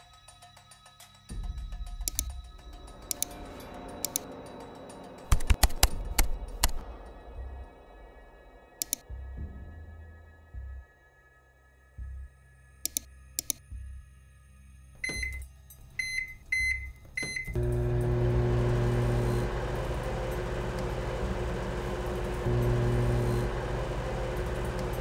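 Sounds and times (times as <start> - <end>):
sharp clicks: 2.0 - 2.4, 3.1 - 3.4, 4.0 - 4.3, 5.3 - 6.8, 8.8 - 9.0, 12.9 - 13.6
microwave keypad beeps: 15.0 - 15.4, 16.0 - 17.6
microwave humming: 16.0 - 25.0.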